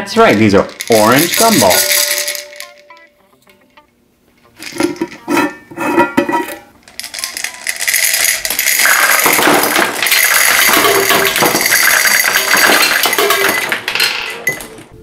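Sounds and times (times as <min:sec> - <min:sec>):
gumballs clattering into glass: 0:00.4 - 0:03.0, 0:06.4 - 0:14.8.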